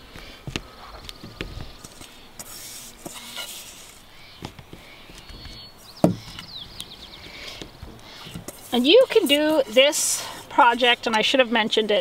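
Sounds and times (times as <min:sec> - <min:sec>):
hands scraping soil from metal bowl: 0:08.2 - 0:12.0.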